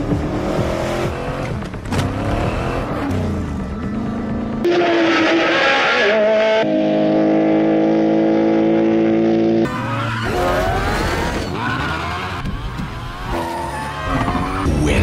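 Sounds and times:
race car engines revving: 0.0 - 15.0
tyre squeal: 9.7 - 12.4.

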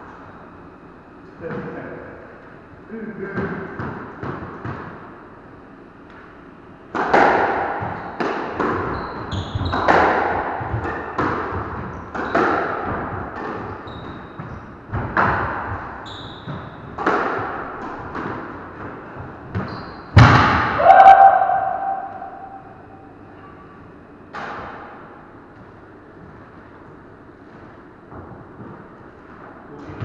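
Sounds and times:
squash ball hitting rackets and walls: 3.4 - 5.1, 6.9 - 22.8, 24.3 - 25.2
shoes squeaking on wooden floor: 8.8 - 10.0, 13.7 - 14.6, 16.0 - 16.8, 19.5 - 20.1.

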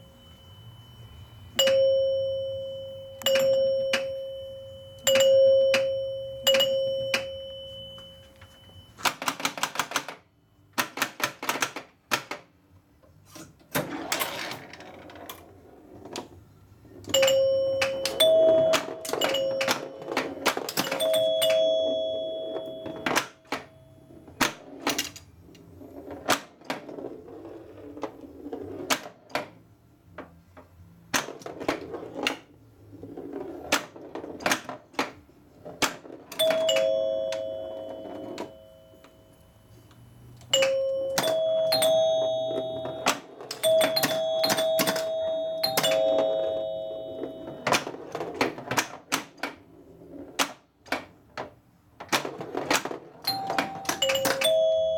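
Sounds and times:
pinball scoring chimes: 0.2 - 10.2, 17.0 - 23.7, 36.0 - 39.4, 40.5 - 49.2, 52.1 - 54.9.

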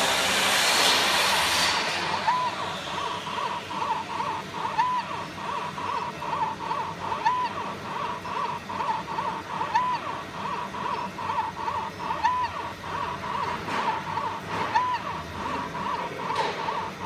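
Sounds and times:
longer held motor whine: 0.0 - 5.0
short machine motor whines: 0.0 - 17.0.

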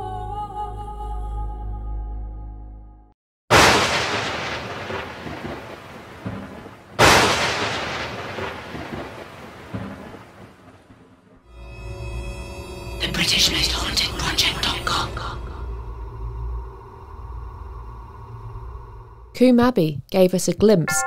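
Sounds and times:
thunderclaps: 3.5 - 11.4.

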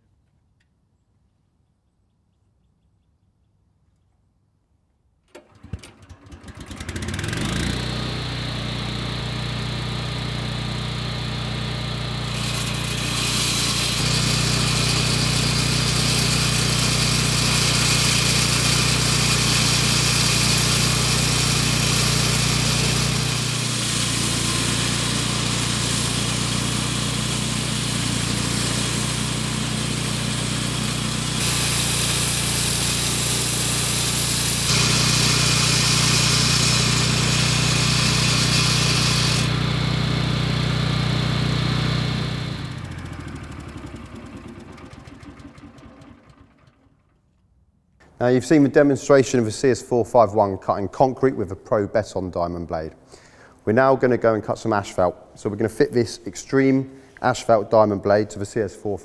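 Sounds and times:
petrol engine running: 5.4 - 47.0
blade grinding concrete: 6.6 - 43.2.

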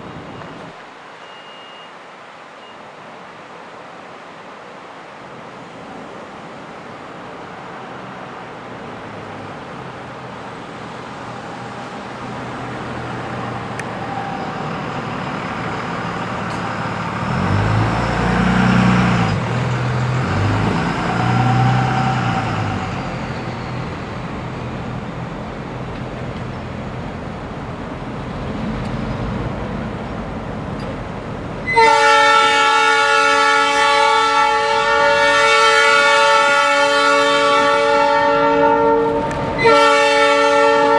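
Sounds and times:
diesel locomotive engines: 0.0 - 40.9
locomotive air horn chord: 31.6 - 40.9.

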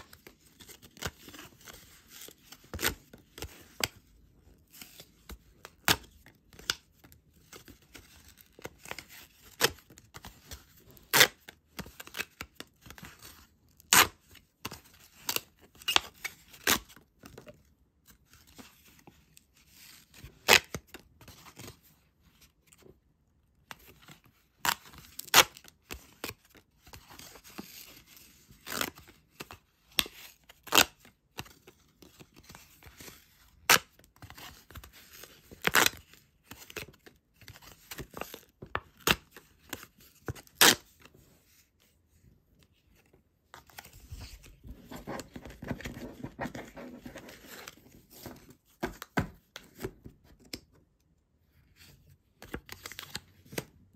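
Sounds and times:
cards rustling: 42.8 - 50.5.

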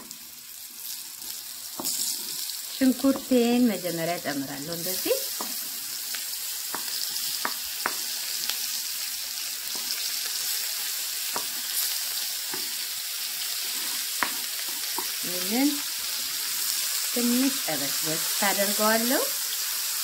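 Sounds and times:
onions sizzling in a frying pan: 0.0 - 20.0
spatula tapping a cutting board: 5.4 - 5.6, 6.7 - 8.0, 11.3 - 11.5.

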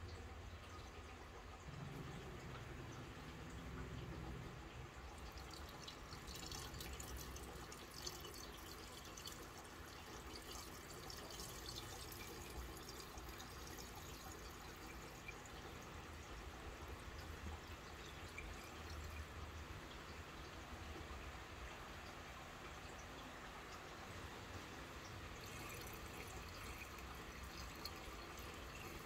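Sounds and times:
water pouring into glass bowl: 1.7 - 15.9, 16.8 - 20.6, 25.0 - 29.0.

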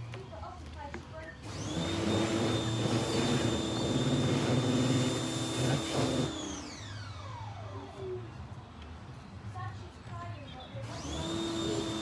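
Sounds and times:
electric motor whining: 1.5 - 7.6, 10.9 - 12.0.

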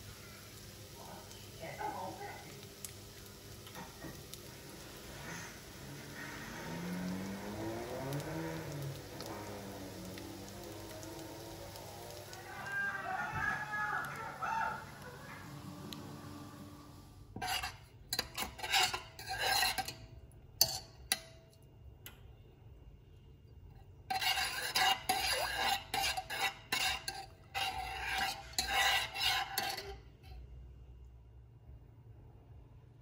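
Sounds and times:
metal spoon scraping a pan: 5.0 - 10.2, 17.3 - 21.6, 23.6 - 30.6.

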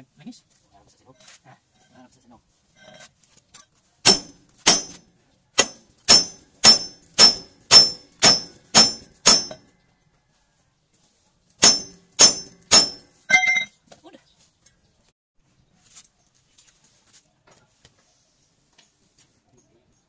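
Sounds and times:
hammer blows on steel: 4.0 - 5.0, 5.6 - 9.6, 11.6 - 13.7.

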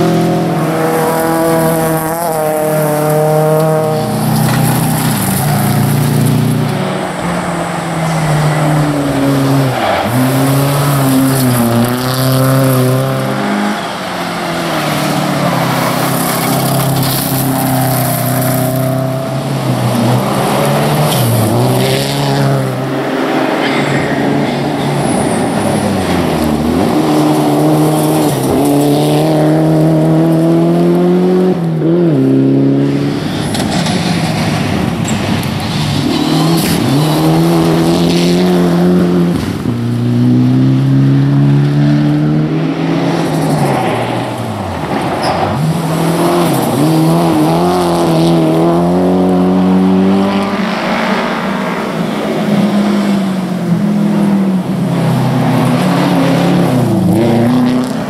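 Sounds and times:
tyres on gravel: 0.0 - 29.6
rally car engines revving: 0.0 - 58.0.

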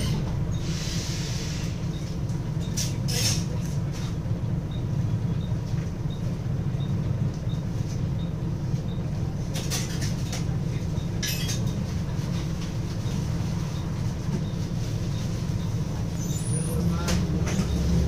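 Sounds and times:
bus diesel engine idling: 0.0 - 18.0
short air hisses: 0.6 - 1.8.

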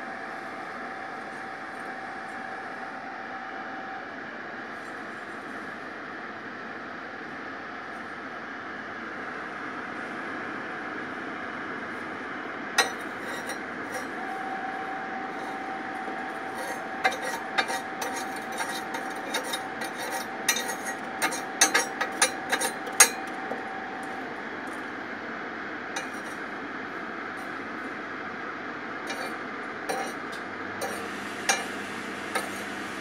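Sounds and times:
metal poker scraping on grate: 12.8 - 14.2, 16.3 - 23.6, 26.0 - 26.4, 29.1 - 32.7.

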